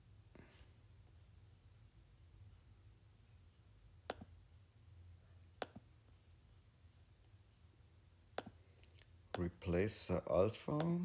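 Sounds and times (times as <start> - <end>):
low steady hum: 0.0 - 11.0
faint taps on a touchscreen: 4.0 - 4.4, 5.4 - 6.2, 8.3 - 9.5, 10.7 - 11.0.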